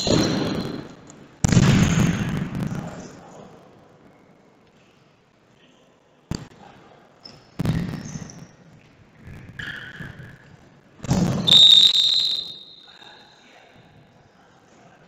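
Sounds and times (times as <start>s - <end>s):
ball thuds echoing in hall: 0.0s - 3.2s, 11.0s - 12.6s
referee's whistle blast: 11.2s - 13.1s.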